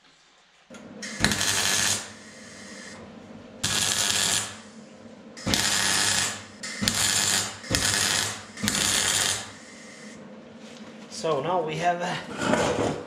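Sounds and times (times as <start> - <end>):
steady low hum: 0.7 - 13.0
arc welding bursts: 1.0 - 3.0, 3.6 - 10.2.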